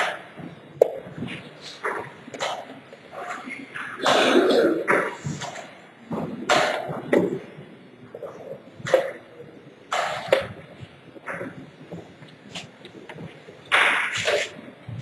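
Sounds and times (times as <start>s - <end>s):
person coughing: 4.0s - 5.0s.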